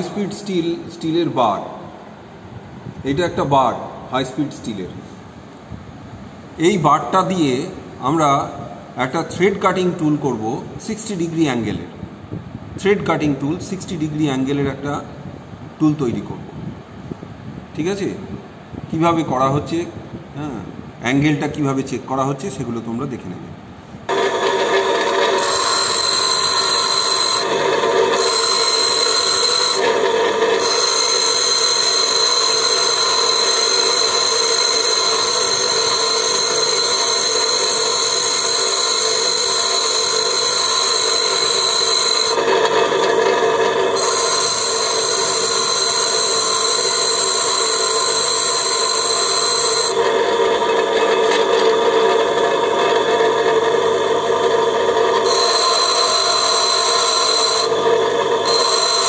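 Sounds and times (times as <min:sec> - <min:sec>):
bench grinder grinding metal: 0:24.1 - 0:59.0.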